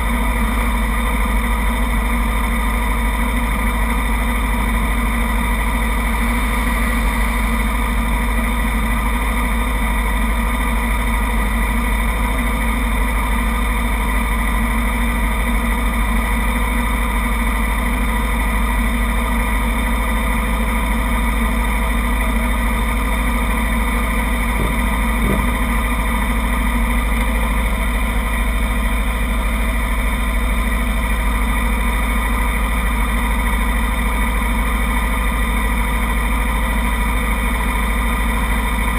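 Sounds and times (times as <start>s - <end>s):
motorcycle engines idling: 0.0s - 38.9s.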